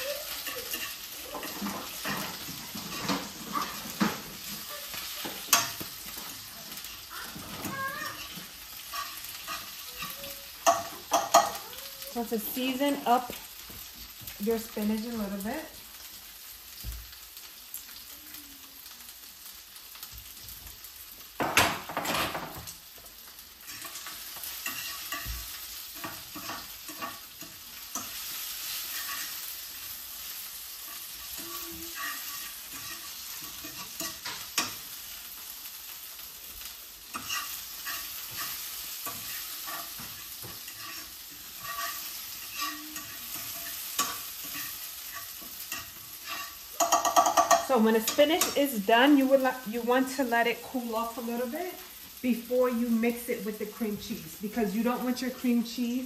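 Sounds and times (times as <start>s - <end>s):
utensil scraping a pan: 0.0s - 11.6s, 23.6s - 35.0s, 37.0s - 49.5s
spinach sizzling in hot oil: 0.0s - 56.0s.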